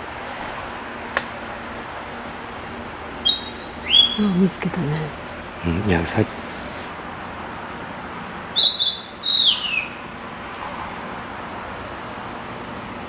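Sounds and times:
bird singing: 3.2 - 4.7, 8.5 - 10.1.

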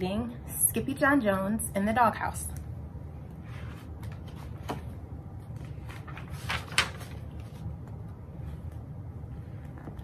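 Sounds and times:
low steady hum: 0.0 - 10.0
page rustling swish: 5.6 - 7.9.

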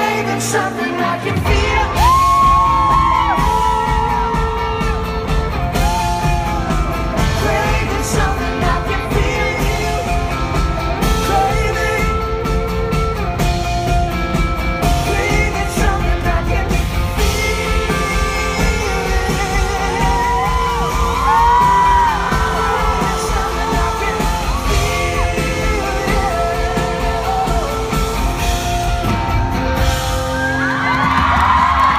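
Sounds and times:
drums: 0.0 - 31.9
electric guitar: 0.0 - 31.9
live pop-rock band: 0.0 - 31.9
man singing long notes: 14.9 - 29.3.

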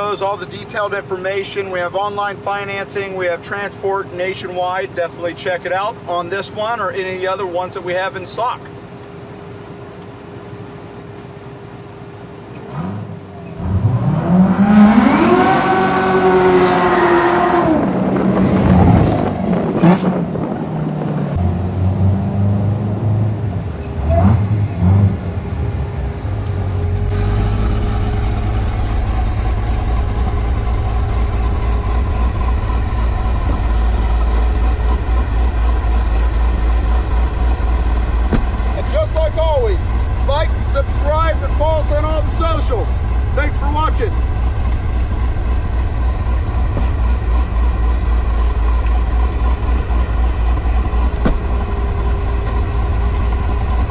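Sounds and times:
car engine accelerating and idling: 12.3 - 53.9.

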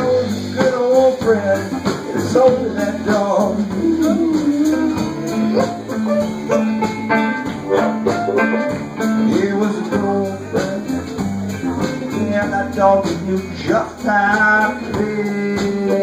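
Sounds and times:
blues band playing: 0.0 - 16.0
amplified harmonica wailing: 3.7 - 9.3.

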